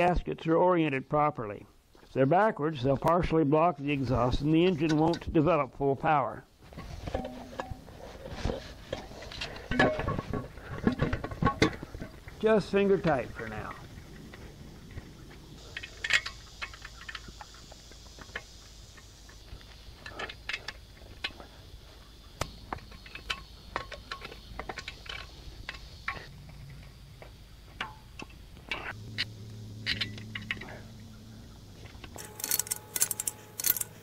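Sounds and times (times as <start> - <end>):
metallic clicks and clinks: 15.6 - 19.4, 27.8 - 31.0, 32.1 - 34.0.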